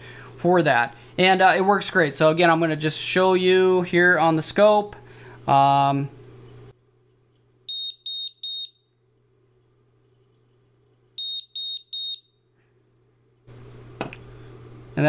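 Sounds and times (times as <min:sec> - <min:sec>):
smoke alarm beeping: 0:07.7 - 0:09.0, 0:11.2 - 0:12.4.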